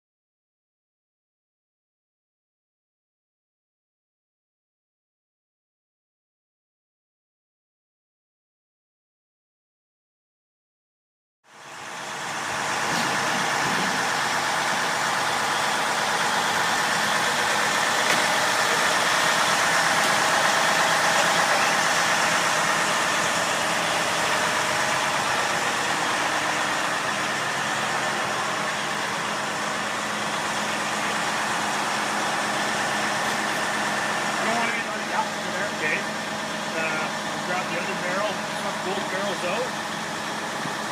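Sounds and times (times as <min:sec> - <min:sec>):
truck engine machinery drone: 0:11.5 - 0:40.9.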